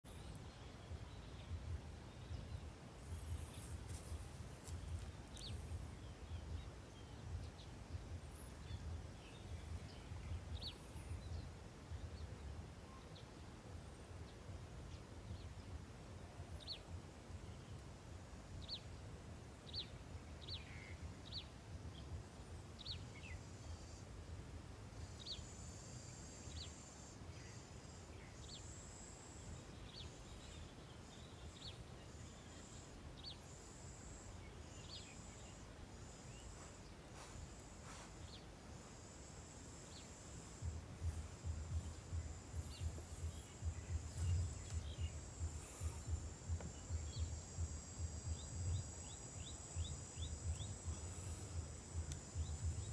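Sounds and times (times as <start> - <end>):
small birds chirping: 0.0 - 52.9
steady low rumble: 0.1 - 19.4, 35.4 - 52.9
high insect buzz: 32.1 - 52.9.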